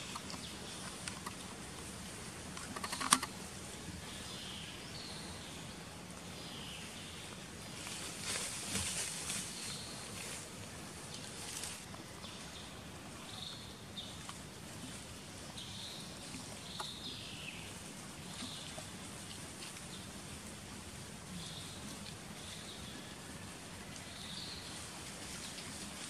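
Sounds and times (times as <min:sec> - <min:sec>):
background hiss: 0:00.0 - 0:26.0.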